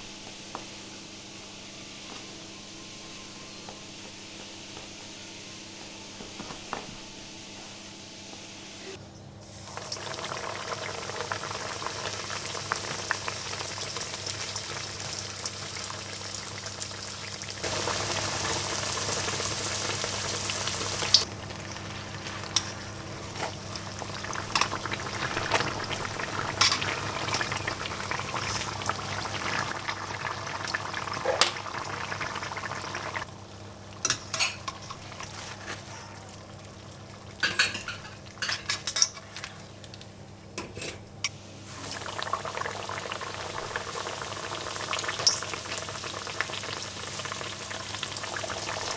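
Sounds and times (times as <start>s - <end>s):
food sizzling in hot oil: 9.4s - 35.8s, 41.6s - 48.9s.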